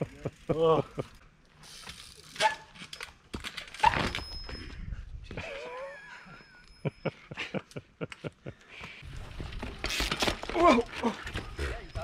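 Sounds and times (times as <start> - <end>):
bike knocking on boulders: 9.2 - 11.6.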